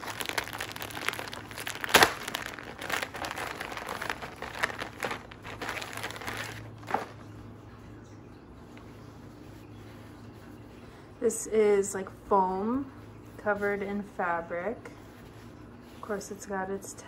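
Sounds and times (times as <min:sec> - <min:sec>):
plastic packaging crinkling: 0:00.0 - 0:07.4.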